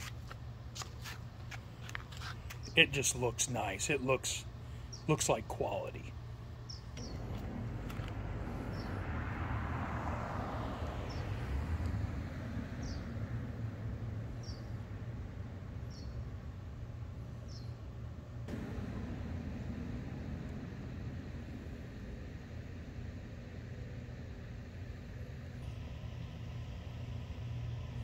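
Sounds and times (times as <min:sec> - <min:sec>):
small bird chirping: 0:06.6 - 0:07.4, 0:12.8 - 0:13.1
low rumble: 0:07.0 - 0:13.6, 0:18.5 - 0:25.8
passing vehicle: 0:07.0 - 0:16.3, 0:18.4 - 0:28.0.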